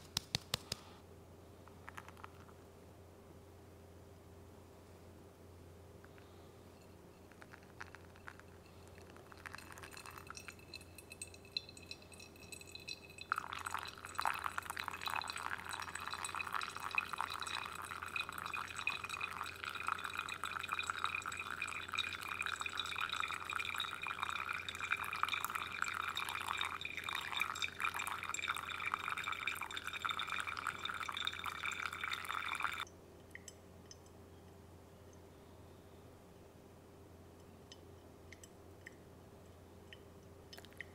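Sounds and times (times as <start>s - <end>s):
water trickling onto coffee grounds: 7.4s - 34.0s.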